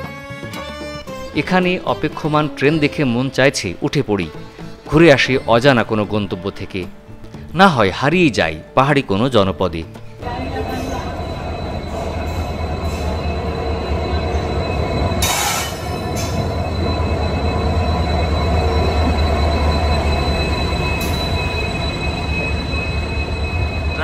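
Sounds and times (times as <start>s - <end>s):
diesel locomotive rumbling past: 10.1s - 24.0s
wheels squealing on rails: 10.2s - 24.0s.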